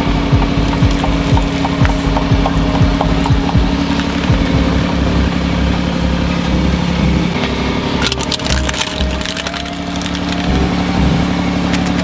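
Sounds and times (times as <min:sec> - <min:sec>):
road roller engine running: 0:00.0 - 0:12.0
drink cans crunching: 0:03.8 - 0:04.6, 0:08.0 - 0:10.8, 0:11.5 - 0:12.0.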